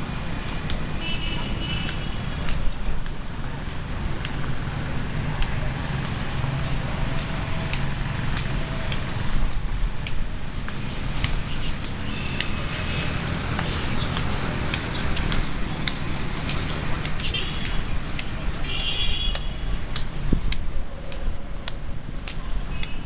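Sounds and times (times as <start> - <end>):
footsteps on paved path: 0.0 - 23.0.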